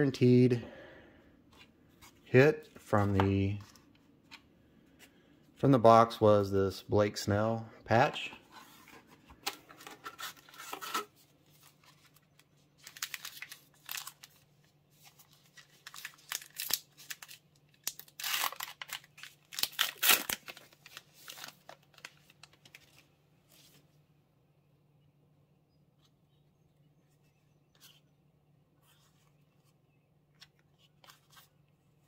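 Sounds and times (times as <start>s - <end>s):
cards rustling and flicking: 1.5s - 6.0s, 8.0s - 23.9s, 28.9s - 31.6s.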